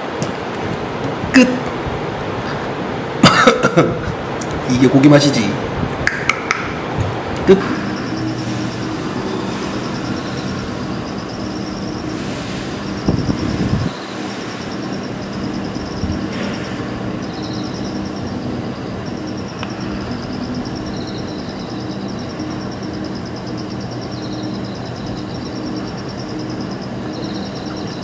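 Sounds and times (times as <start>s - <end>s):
steady rushing noise: 4.1s - 28.0s
night insects chirping: 7.5s - 28.0s.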